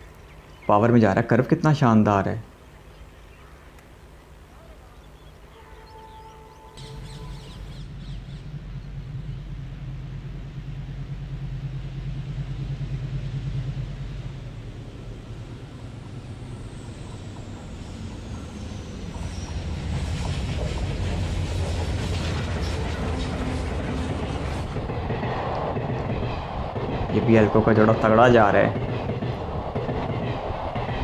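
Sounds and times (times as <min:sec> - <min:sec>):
diesel locomotive engines droning: 0:00.0 - 0:31.0
train wheels clattering over rail joints: 0:16.8 - 0:31.0.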